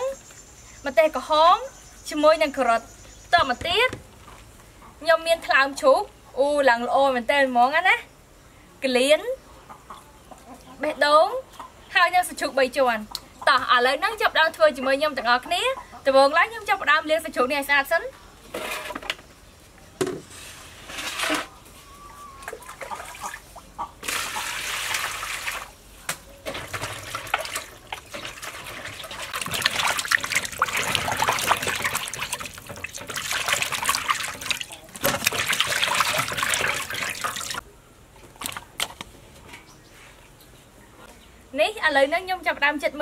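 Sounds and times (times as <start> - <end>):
water poured into metal basin: 26.5 - 37.6
hands splashing in water: 26.6 - 37.6.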